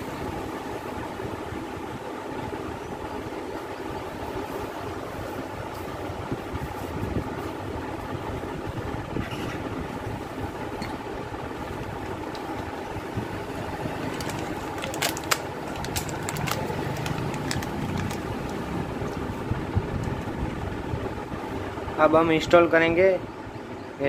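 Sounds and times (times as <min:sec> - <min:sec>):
engine-like rumble: 0:02.8 - 0:23.1
paper packet torn open: 0:13.9 - 0:18.7.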